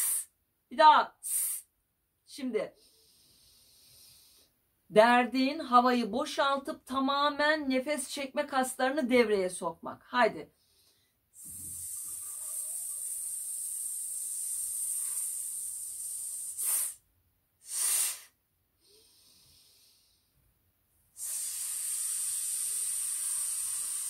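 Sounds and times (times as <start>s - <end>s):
woman hissing breath out: 0.0s - 0.3s, 1.2s - 1.7s, 11.4s - 17.0s, 17.6s - 20.2s, 21.2s - 24.0s.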